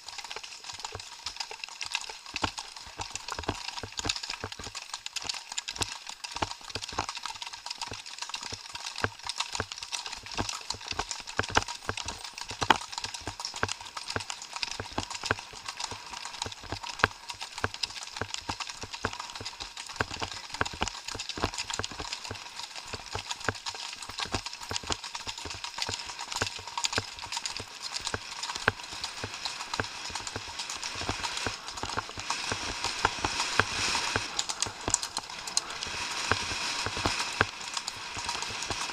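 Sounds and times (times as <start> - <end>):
hooves on gravel: 11.4 - 38.9
steady hiss: 25.6 - 38.9.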